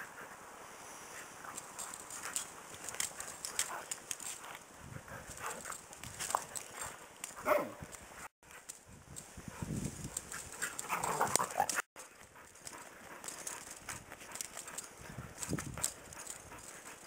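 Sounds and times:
dogs yelping: 0:10.6 - 0:11.9.

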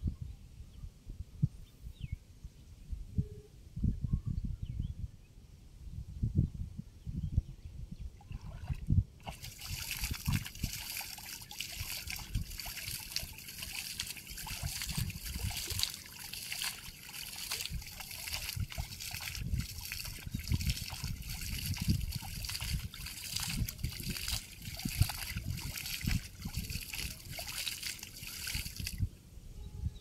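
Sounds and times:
water splashing and trickling: 0:08.2 - 0:29.1
water dripping off rope: 0:08.4 - 0:29.0.

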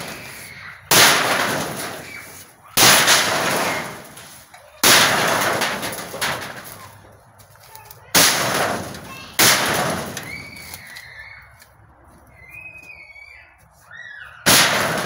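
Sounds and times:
sheet metal crashing: 0:00.0 - 0:07.0, 0:08.1 - 0:10.5, 0:14.4 - 0:15.0.

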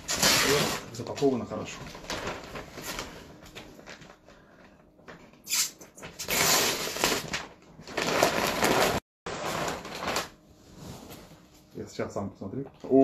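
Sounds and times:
paper tearing and crumpling: 0:00.0 - 0:03.2, 0:05.5 - 0:10.4.

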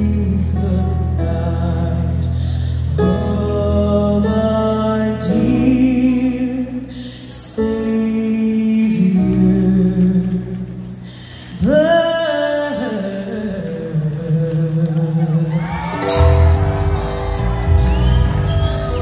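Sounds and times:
person singing: 0:00.0 - 0:19.0
sustained instrumental accompaniment: 0:16.0 - 0:19.0.

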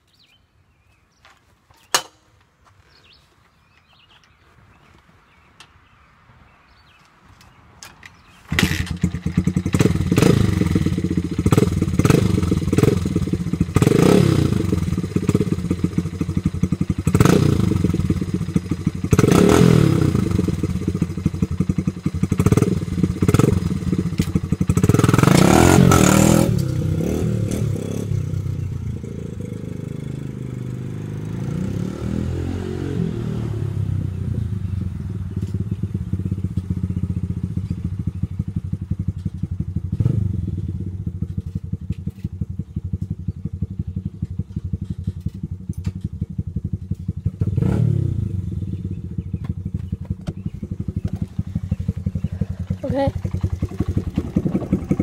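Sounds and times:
dirt bike engine revving: 0:08.5 - 0:41.6, 0:46.2 - 0:55.0.

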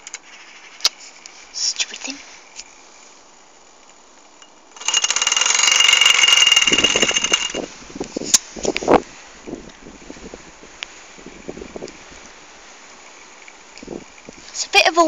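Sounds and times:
toy steam engine rattling: 0:04.7 - 0:07.7.

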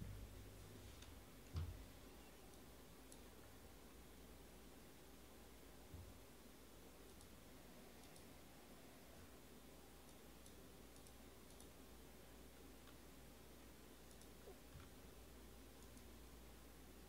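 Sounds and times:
computer mouse clicks: 0:02.5 - 0:03.3, 0:07.0 - 0:08.4, 0:10.0 - 0:11.8, 0:12.8 - 0:13.0, 0:14.0 - 0:15.0, 0:15.8 - 0:16.2.

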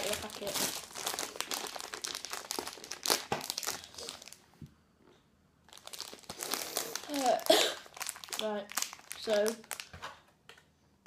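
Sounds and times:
plastic packet crinkling: 0:00.0 - 0:04.4, 0:05.7 - 0:10.0.

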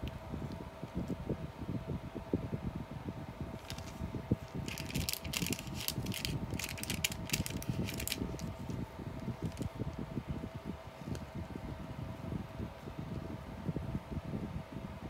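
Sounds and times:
faint hum: 0:00.0 - 0:15.0
low fluttering rumble: 0:00.0 - 0:15.0
rustling and crackling clicks: 0:03.6 - 0:10.0.

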